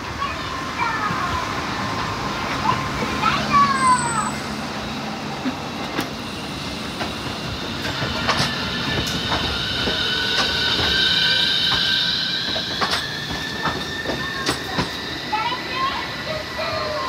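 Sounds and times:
tram passing slowly: 0.0s - 17.0s
high-pitched wheel squeal: 3.6s - 4.6s, 8.8s - 17.0s
wheels clicking over rails: 6.8s - 11.0s, 11.6s - 15.0s.

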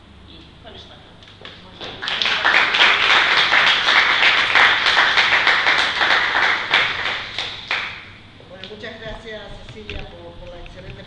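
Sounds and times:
audience clapping: 1.5s - 8.2s.

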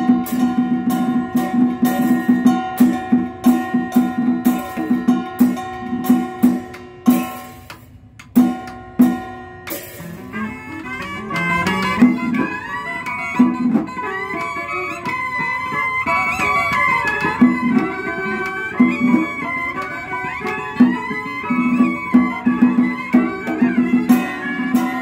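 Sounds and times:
plucked string notes: 0.0s - 25.0s
bowed fiddle: 10.0s - 25.0s
reed horn melody: 10.1s - 15.1s.

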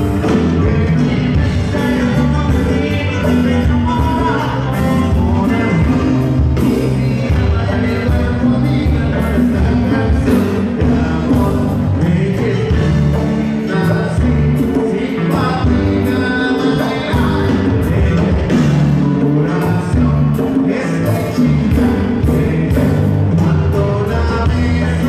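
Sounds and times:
live band dance music: 0.0s - 25.0s
person singing: 0.0s - 25.0s.

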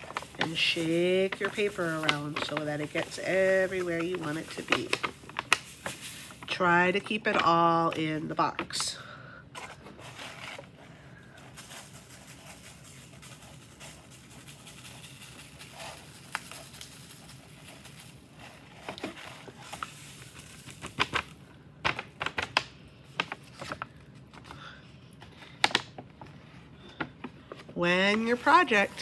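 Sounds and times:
glitter falling on paper: 0.0s - 8.0s, 11.5s - 23.9s.

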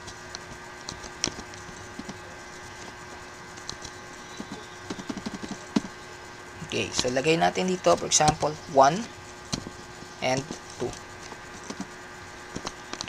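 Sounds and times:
faint electrical hum: 0.0s - 13.0s
computer keyboard keystrokes: 3.6s - 5.9s.

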